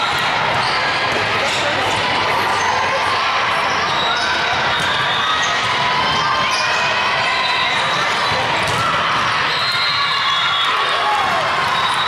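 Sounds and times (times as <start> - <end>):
many voices: 0.0 - 12.0
volleyball hits and bounces: 7.8 - 10.1.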